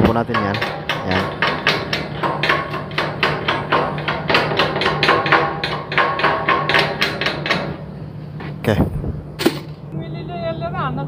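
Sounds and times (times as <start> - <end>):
chipping hammer striking steel: 0.0 - 7.8.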